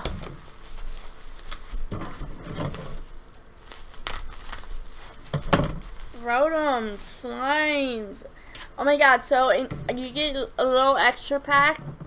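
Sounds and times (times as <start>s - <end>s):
packaging crinkling: 0.0s - 7.1s.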